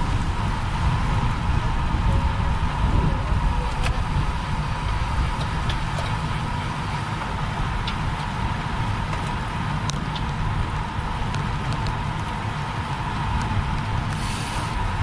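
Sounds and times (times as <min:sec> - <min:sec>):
bicycle road noise: 0:00.0 - 0:15.0
wind rush on microphone: 0:00.0 - 0:15.0.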